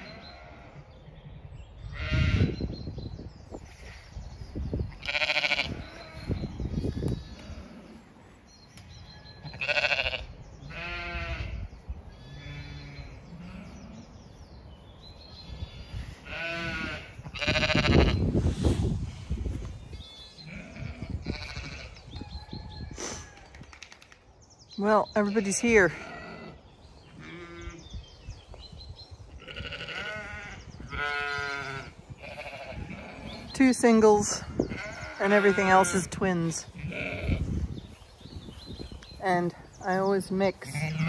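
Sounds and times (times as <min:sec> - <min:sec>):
sheep bleating: 0:05.0 - 0:06.3, 0:09.5 - 0:11.6, 0:16.2 - 0:18.2, 0:20.4 - 0:22.0, 0:27.2 - 0:27.8, 0:29.4 - 0:33.3, 0:34.7 - 0:36.2, 0:36.8 - 0:37.5, 0:40.6 - 0:41.0.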